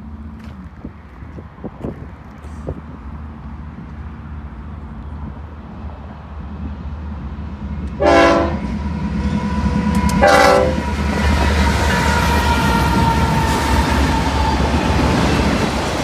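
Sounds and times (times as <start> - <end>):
diesel locomotives rumbling: 0.0 - 16.0
locomotive air horn blasts: 8.0 - 14.8.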